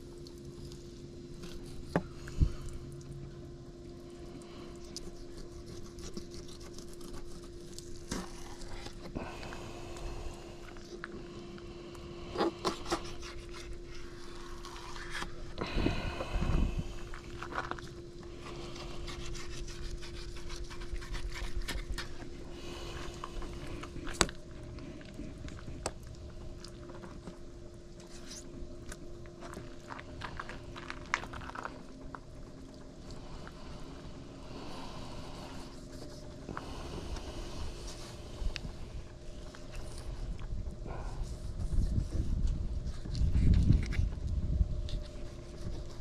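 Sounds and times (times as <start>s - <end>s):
steady hum: 0.0s - 46.0s
knife scraping and cutting meat: 4.8s - 9.1s, 18.4s - 22.2s.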